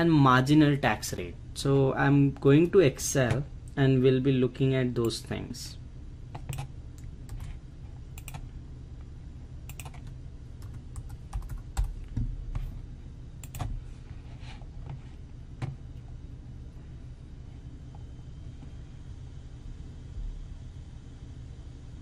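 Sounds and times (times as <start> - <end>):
low steady hum: 0.0 - 22.0
computer keyboard typing: 6.3 - 7.6, 8.2 - 8.5, 9.7 - 12.7, 13.4 - 13.8.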